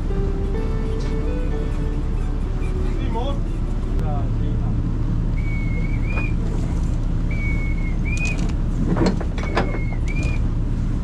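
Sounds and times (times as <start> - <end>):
ship engine humming: 0.0 - 11.0
whistled call: 5.4 - 6.4, 7.3 - 8.5, 9.4 - 10.4.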